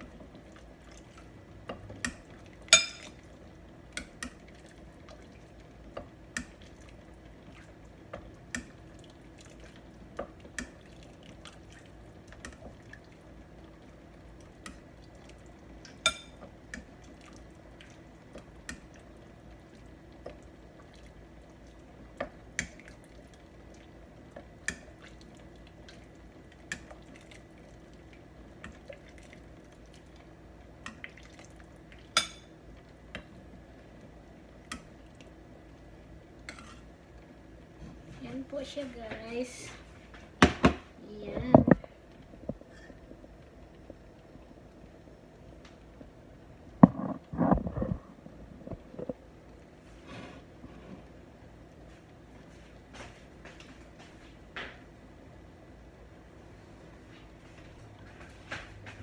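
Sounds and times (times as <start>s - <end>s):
metal ladle clinking on pot: 2.7s - 3.1s
broth dripping and splashing: 22.5s - 32.2s.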